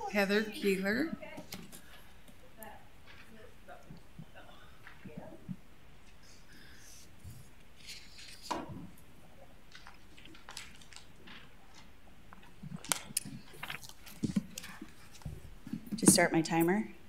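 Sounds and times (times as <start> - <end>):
paper rustling: 6.1 - 8.9, 9.7 - 15.8.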